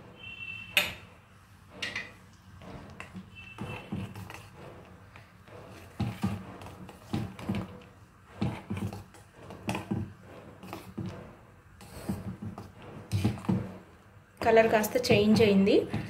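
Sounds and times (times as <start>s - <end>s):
metal spoon stirring in steel pot: 1.8s - 16.0s.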